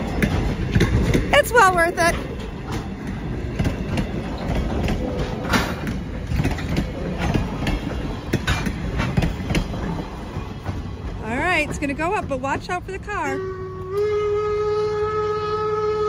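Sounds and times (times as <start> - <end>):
wheels clacking over rail joints: 0.0 - 14.1
train wheels rumbling on rails: 0.0 - 16.0.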